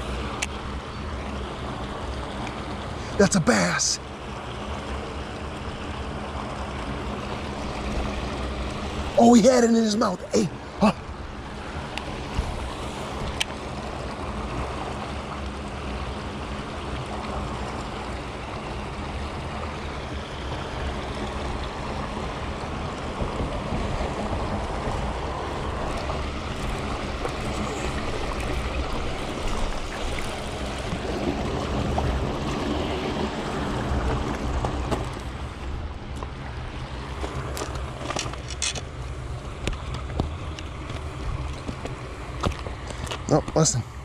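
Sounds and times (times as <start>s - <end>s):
water rushing through dam: 2.1s - 4.0s, 6.6s - 13.9s, 23.0s - 37.5s.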